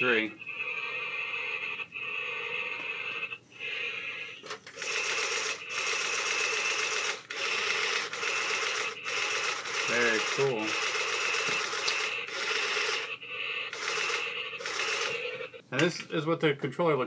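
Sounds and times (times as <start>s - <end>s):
toy speaker rasping hiss: 0.4s - 4.5s.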